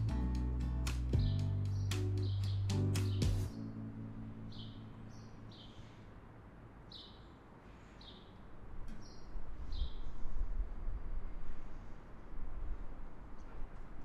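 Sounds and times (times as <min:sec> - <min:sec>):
small bird chirping: 0:01.2 - 0:03.7.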